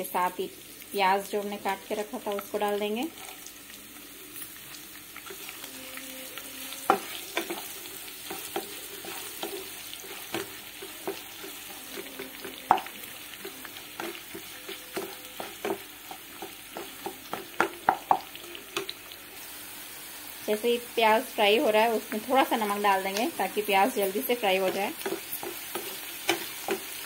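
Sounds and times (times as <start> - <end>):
onions sizzling in hot oil: 0.0 - 27.0
spatula knocking and scraping pan: 6.9 - 18.9, 24.1 - 27.0.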